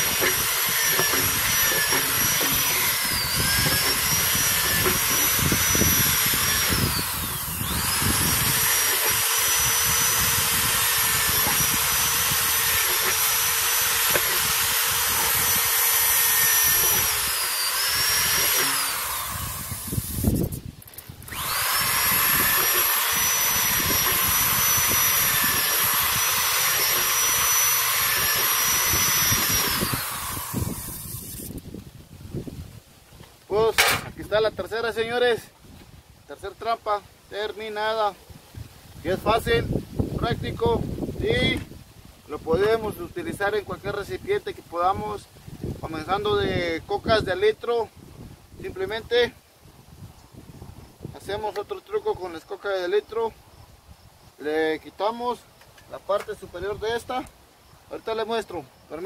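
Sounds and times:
electric drill boring plastic: 0.0s - 31.6s.

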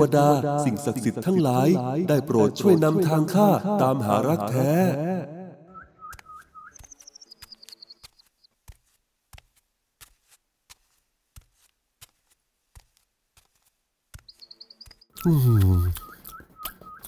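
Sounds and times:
bird chirping trill: 5.7s - 8.5s, 14.2s - 17.0s
faint footsteps: 6.1s - 15.2s.

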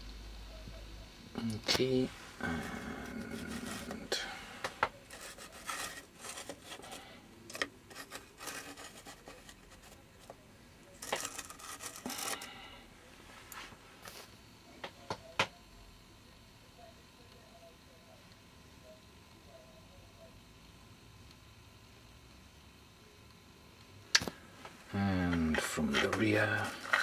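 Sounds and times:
bases scraping on tabletop: 2.4s - 10.4s, 11.0s - 12.7s.

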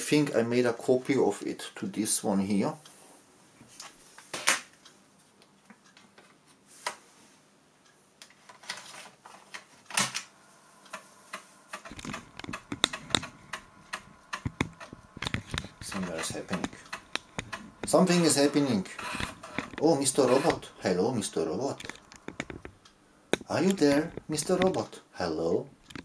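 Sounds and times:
disk inserted into floppy drive: 10.9s - 22.8s
floppy disk plastic clicks: 10.9s - 24.8s, 25.8s - 26.0s.

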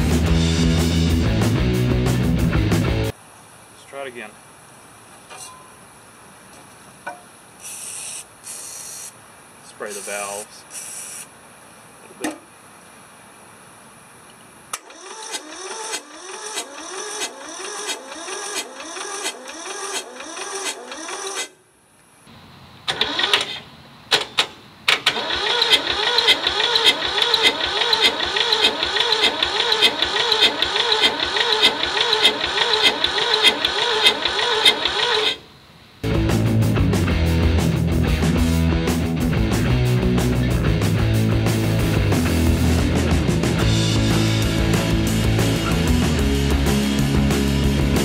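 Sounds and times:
diesel engine starter cranking: 14.8s - 21.6s, 22.8s - 35.5s.

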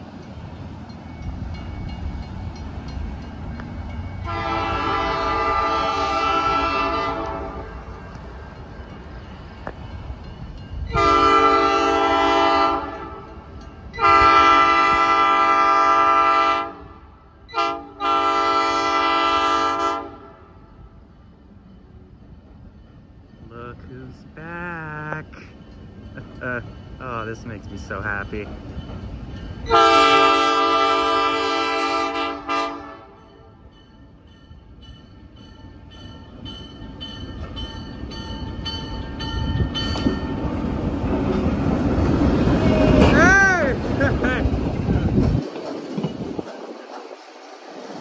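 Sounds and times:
low train rumble: 0.0s - 48.0s
locomotive air horn blasts: 4.2s - 7.8s, 10.9s - 13.3s, 14.0s - 20.6s, 29.7s - 33.3s.

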